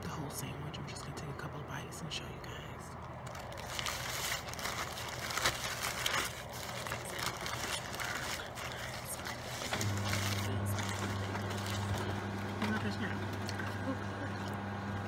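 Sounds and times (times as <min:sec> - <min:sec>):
steady low hum: 0:00.0 - 0:15.0
paper wrapper crinkling: 0:03.0 - 0:13.9.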